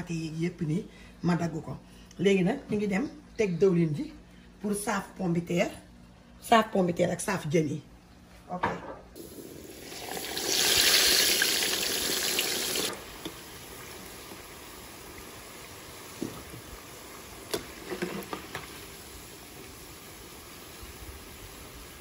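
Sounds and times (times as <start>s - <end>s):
fish sizzling in hot oil: 9.2s - 22.0s
potato slices frying: 9.6s - 22.0s.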